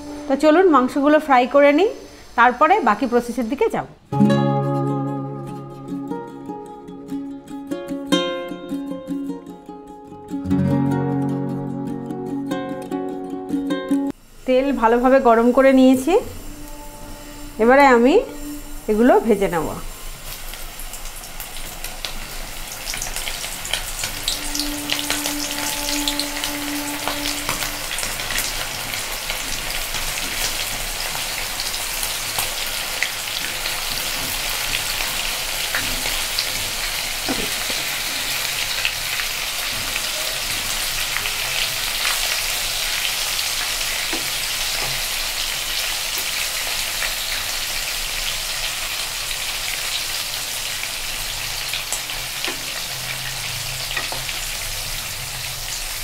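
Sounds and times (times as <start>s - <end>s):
deep-frying sizzle and pops: 20.0s - 56.0s.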